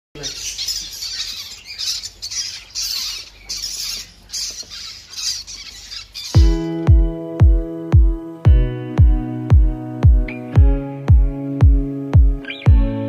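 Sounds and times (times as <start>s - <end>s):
chicks squawking raspily: 0.2s - 7.2s.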